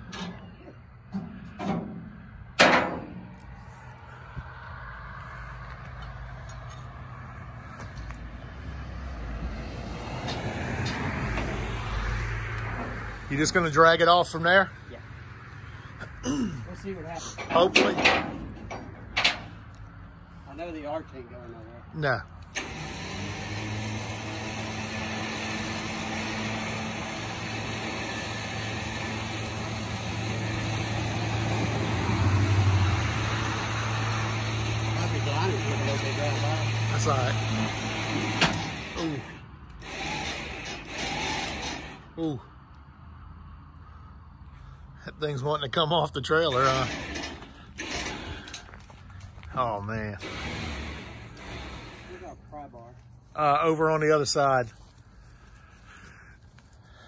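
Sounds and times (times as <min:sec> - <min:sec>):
vehicle engine running: 0:22.4 - 0:39.9.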